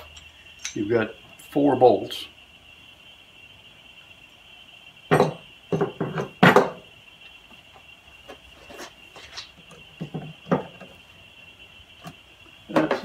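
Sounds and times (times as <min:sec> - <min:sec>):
faint high-pitched whine: 0:00.0 - 0:13.0
metal parts knocking on workbench: 0:05.1 - 0:06.8, 0:12.7 - 0:13.0.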